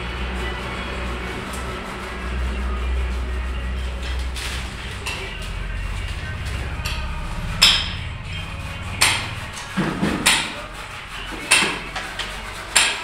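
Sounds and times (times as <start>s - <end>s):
sharp metallic knocks: 6.8s - 13.0s.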